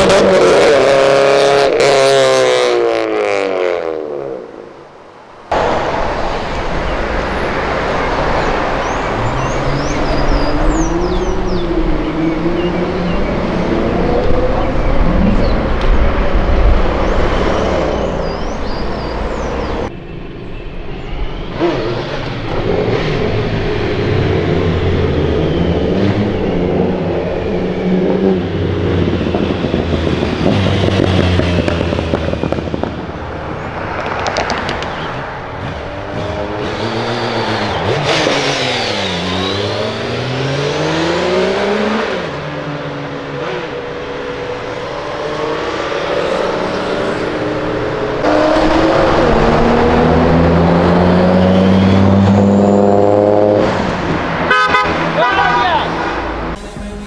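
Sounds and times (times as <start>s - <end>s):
engines revving: 0.0s - 4.7s, 5.5s - 19.9s, 21.0s - 57.0s
cars and motorcycles driving past: 5.5s - 57.0s.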